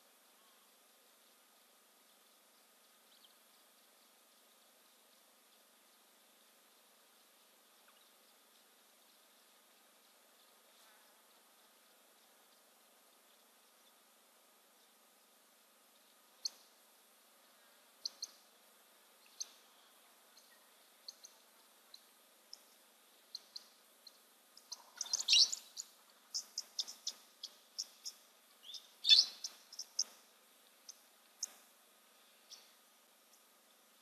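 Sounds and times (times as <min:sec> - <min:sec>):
parrots chirping: 0:24.6 - 0:30.1.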